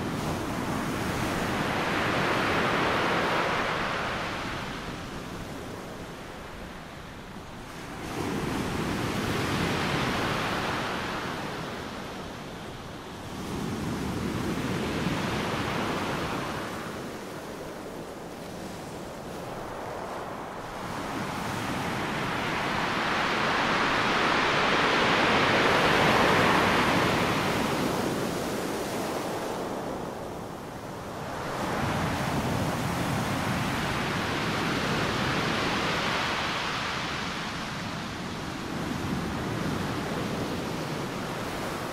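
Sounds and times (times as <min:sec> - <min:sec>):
ocean waves surging: 0:20.4 - 0:41.9.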